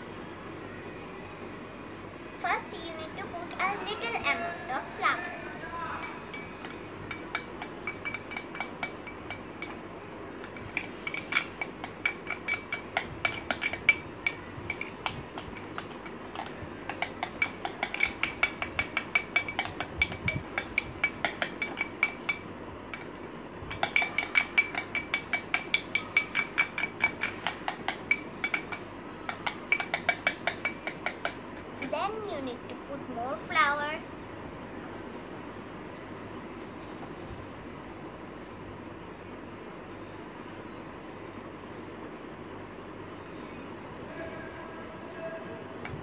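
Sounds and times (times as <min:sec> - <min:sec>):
spoon clinking in glass bowl: 0:06.0 - 0:09.8, 0:10.6 - 0:31.9.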